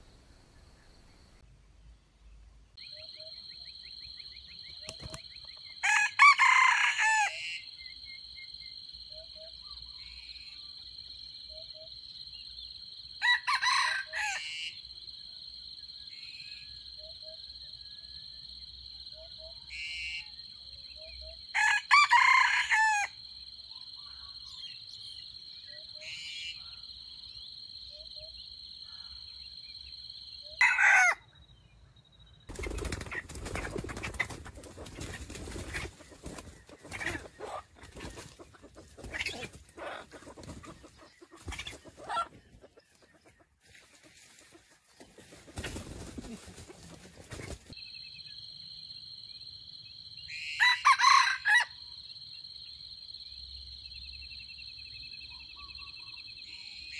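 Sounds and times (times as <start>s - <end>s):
rooster crowing: 5.8s - 7.7s, 13.2s - 14.7s, 21.5s - 23.2s, 30.6s - 31.3s, 50.4s - 51.8s.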